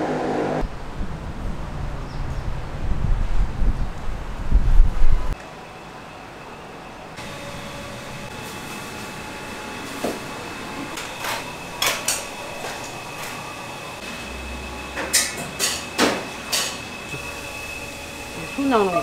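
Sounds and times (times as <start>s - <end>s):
kitchen hum: 7.2s - 19.0s.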